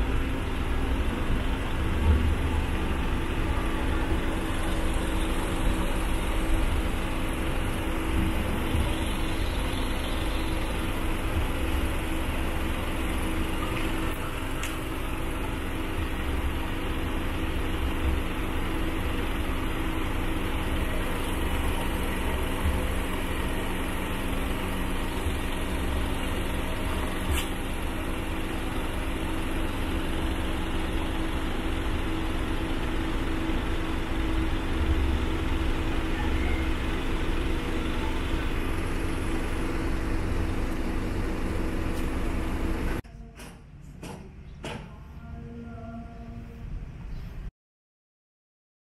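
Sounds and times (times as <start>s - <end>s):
engine droning: 0.0s - 47.5s.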